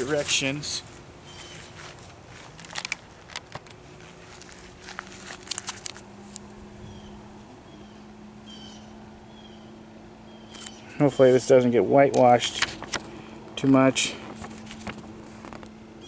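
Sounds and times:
low steady hum: 0.0s - 16.0s
plastic wrap and paper rustling: 1.5s - 6.1s, 12.3s - 13.2s, 13.9s - 15.7s.

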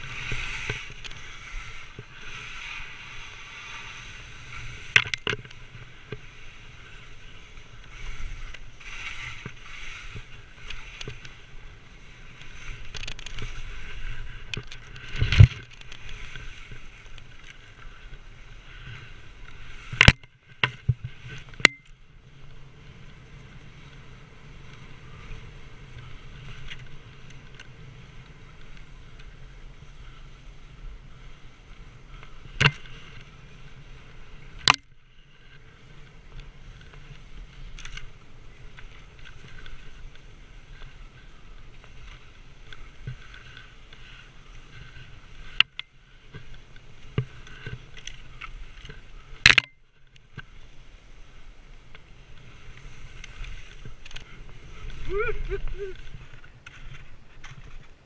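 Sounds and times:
skis scraping over snow: 0.0s - 58.0s
wind noise on microphone: 50.9s - 58.0s.

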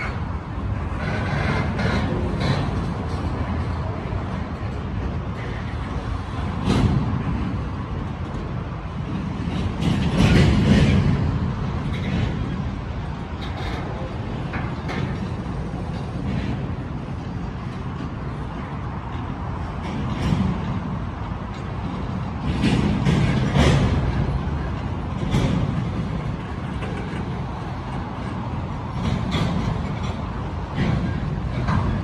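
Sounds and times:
sharp clanks and knocks: 0.0s - 32.0s
train wheels rumbling on rail: 0.0s - 32.0s.

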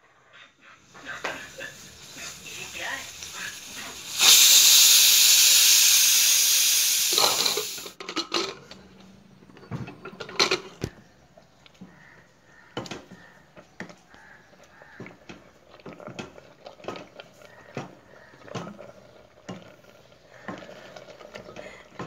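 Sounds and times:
pressure cooker steam hiss: 0.8s - 8.0s.

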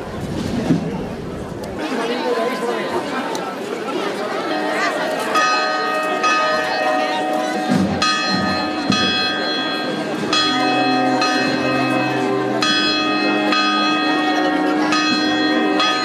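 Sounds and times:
church bells ringing: 4.4s - 16.0s.

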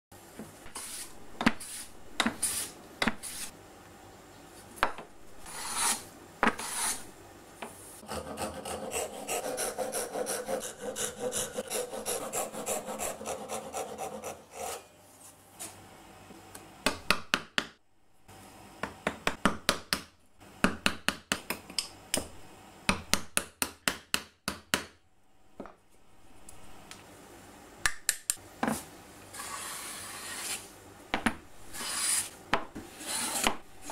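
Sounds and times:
hand plane hissing on wood: 0.8s - 1.1s, 5.4s - 6.0s, 6.6s - 7.0s, 29.4s - 30.6s, 31.8s - 32.3s, 32.9s - 33.4s
hand saw sawing wood: 8.0s - 14.8s.

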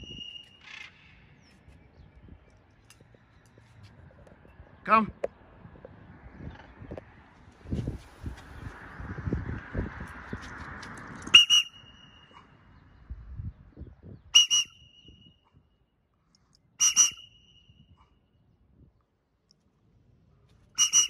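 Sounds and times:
whistle double blasts: 0.0s - 0.6s, 11.3s - 12.4s, 14.3s - 15.6s, 16.8s - 18.0s, 20.8s - 21.0s.

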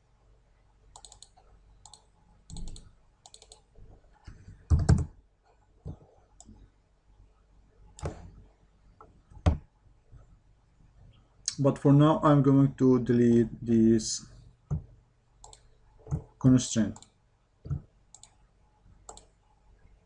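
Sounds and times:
computer mouse clicks: 0.9s - 5.1s, 15.4s - 16.3s, 16.9s - 18.4s, 19.1s - 19.4s.

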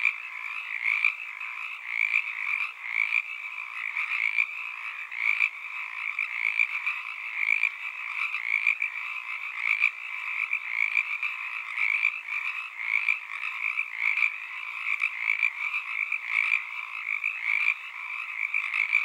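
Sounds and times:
frogs chorus calling: 0.0s - 19.0s.

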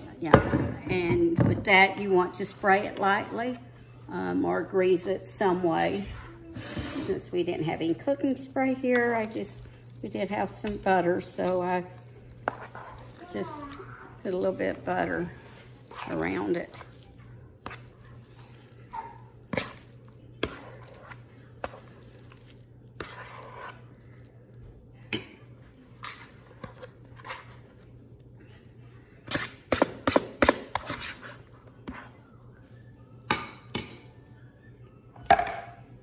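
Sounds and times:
metal spoon scraping plastic bowl: 23.0s - 23.9s.

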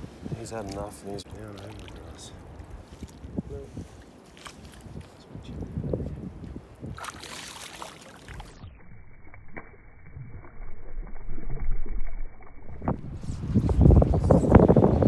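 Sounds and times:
wind buffeting microphone: 0.0s - 8.6s, 12.6s - 15.0s
water sloshing at bank: 0.6s - 3.4s, 6.8s - 8.7s
fish splashing in water: 6.9s - 8.6s.

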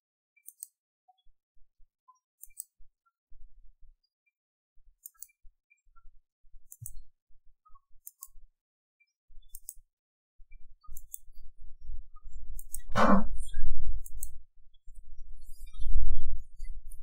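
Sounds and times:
computer mouse button clicks: 14.0s - 14.3s.

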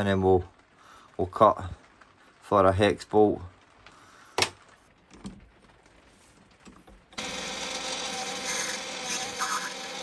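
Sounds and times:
metal lathe whirring: 7.2s - 10.0s
steady machine tones: 7.2s - 10.0s.

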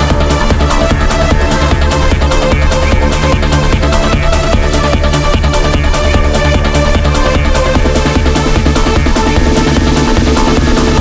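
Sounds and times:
electronic trance music: 0.0s - 11.0s.

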